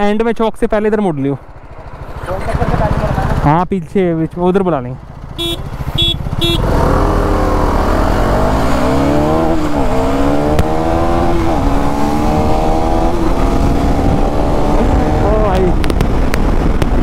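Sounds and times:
motorcycle engine accelerating: 1.4 - 3.6, 5.0 - 17.0
wind rush: 10.8 - 17.0.

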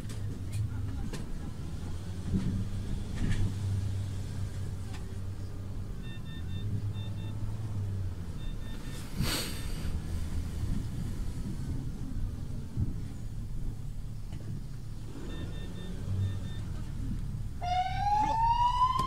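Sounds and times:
ambulance engine rumbling: 0.0 - 19.0
short electronic beeps: 6.0 - 7.4, 8.4 - 9.1, 15.2 - 16.7.

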